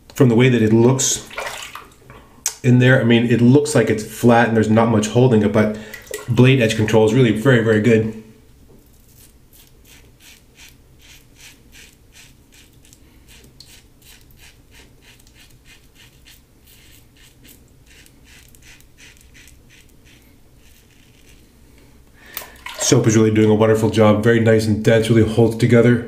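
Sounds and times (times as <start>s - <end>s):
razor rasping through stubble: 9.0s - 21.5s.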